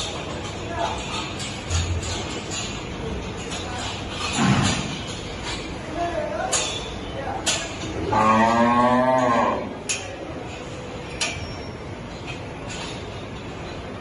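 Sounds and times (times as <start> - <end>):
cow mooing: 8.0 - 9.8.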